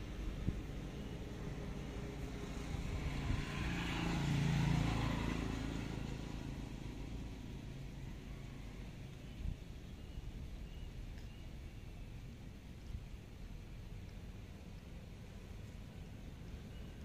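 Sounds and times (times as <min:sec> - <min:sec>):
motor vehicle passing: 0:00.0 - 0:09.2.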